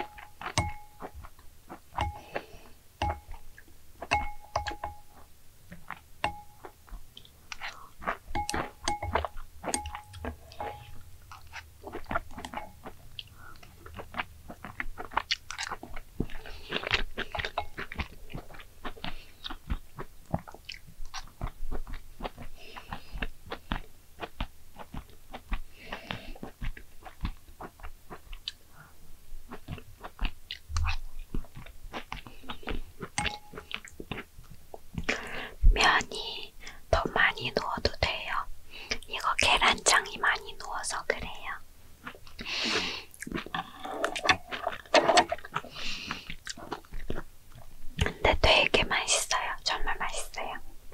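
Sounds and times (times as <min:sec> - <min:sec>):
person chewing noodles: 0:00.0 - 0:48.3
mouth clicks: 0:05.9 - 0:21.3, 0:42.3 - 0:49.3.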